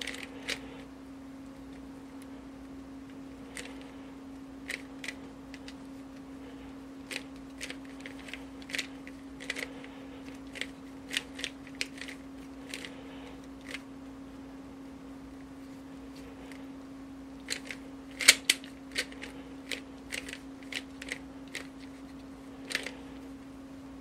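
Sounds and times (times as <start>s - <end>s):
steady low hum: 0.0s - 24.0s
puzzle cube plastic clicks: 7.1s - 12.9s, 17.4s - 23.0s.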